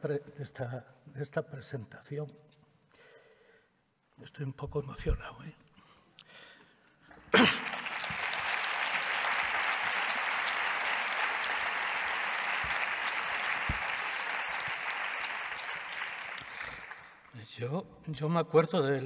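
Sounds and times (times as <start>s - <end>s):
audience applauding: 7.1s - 17.4s.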